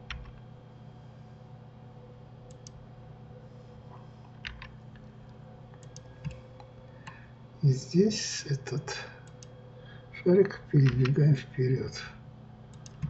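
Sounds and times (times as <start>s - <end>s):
steady low hum: 0.0s - 13.0s
mouse and keyboard clicks: 12.7s - 13.0s.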